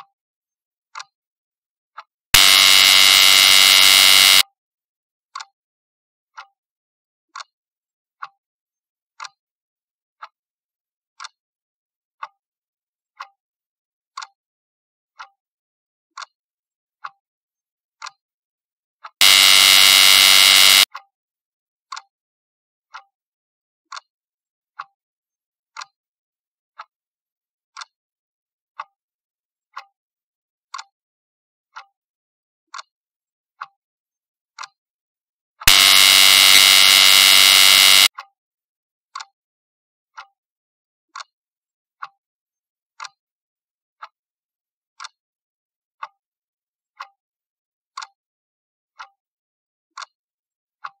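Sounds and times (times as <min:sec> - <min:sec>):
loud buzzer: 0:02.4 - 0:04.4, 0:19.2 - 0:20.9, 0:35.7 - 0:38.1.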